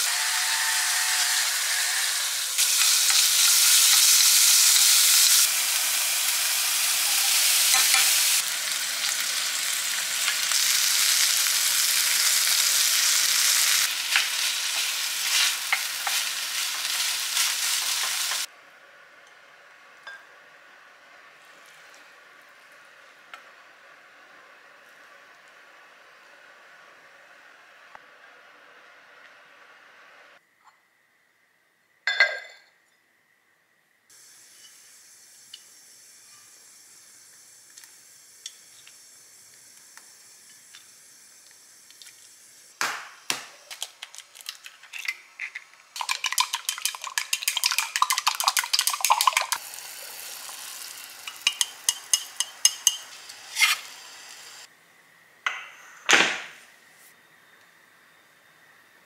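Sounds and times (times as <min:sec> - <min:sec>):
egg beaten in glass mug: 0:46.0 - 0:49.6.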